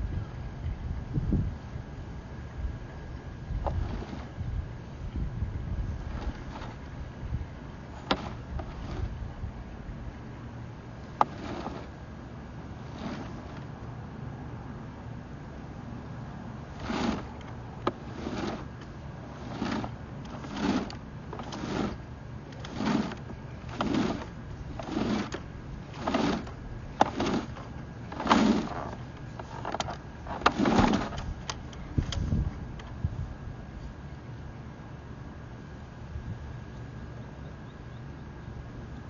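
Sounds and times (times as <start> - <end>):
cable sliding rasps: 3.6 - 4.3, 8.0 - 9.2, 11.2 - 12.0, 12.7 - 13.7, 16.6 - 32.3.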